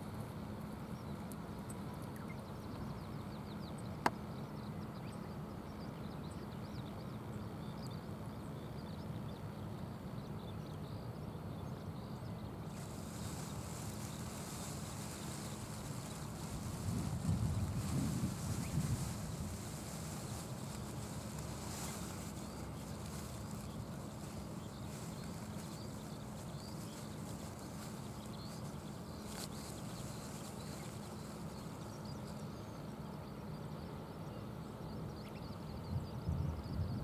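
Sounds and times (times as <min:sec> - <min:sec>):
small birds chirping: 0:00.5 - 0:37.0
even hiss: 0:12.6 - 0:32.5.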